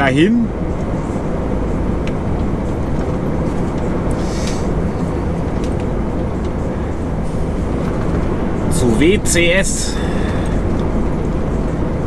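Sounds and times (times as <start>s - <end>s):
truck diesel engine rumble: 0.0s - 12.0s
short hiss: 4.1s - 4.7s.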